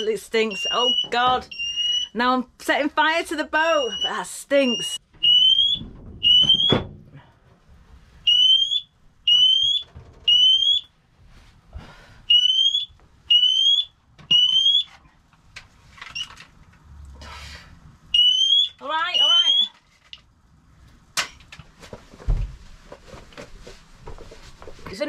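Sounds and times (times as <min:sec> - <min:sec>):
smoke alarm beeping: 0:00.0 - 0:02.2, 0:03.6 - 0:06.9, 0:08.2 - 0:10.9, 0:12.3 - 0:14.9, 0:18.2 - 0:19.7.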